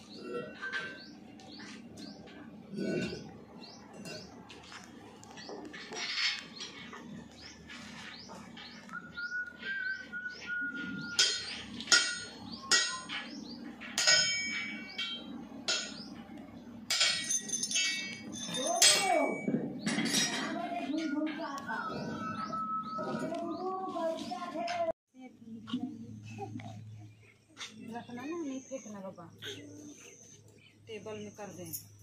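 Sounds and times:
small birds chirping: 0.0 - 16.9, 18.5 - 32.0
hammer striking metal: 11.2 - 16.1, 16.9 - 20.6.

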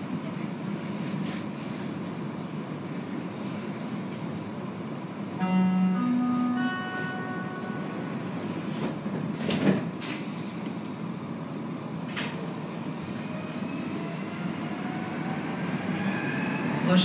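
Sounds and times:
steady train hum: 0.0 - 17.0
door closing chime: 5.4 - 8.1
sliding doors shutting with a thud: 8.8 - 10.4.

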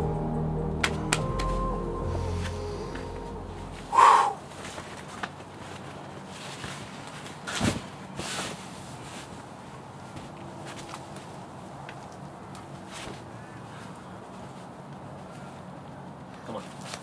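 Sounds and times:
background music: 0.0 - 4.5
short loud cry: 3.9 - 4.4.

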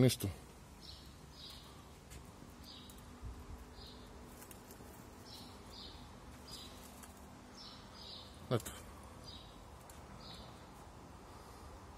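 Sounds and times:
sparrow chirps: 0.8 - 2.0, 2.6 - 4.2, 5.2 - 10.8.

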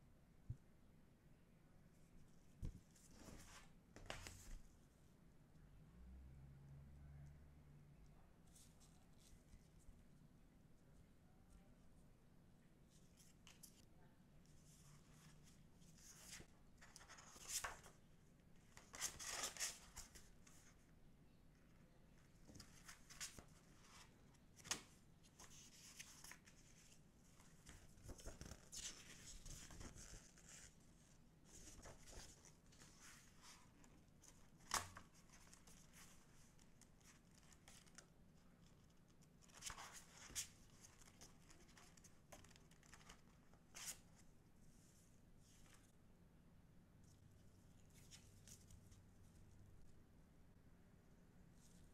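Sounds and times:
book pages rustling and flipping: 2.5 - 4.8, 14.6 - 18.0, 18.6 - 20.8, 22.4 - 38.1, 38.8 - 44.3.

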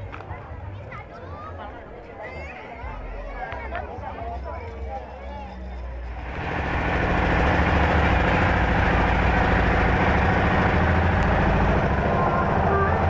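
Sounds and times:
heavy engine idling: 6.1 - 13.0.

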